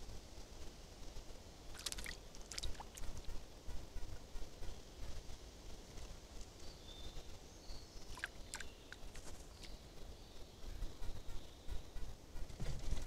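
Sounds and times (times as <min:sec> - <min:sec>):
distant songbird notes: 0:06.6 - 0:12.5.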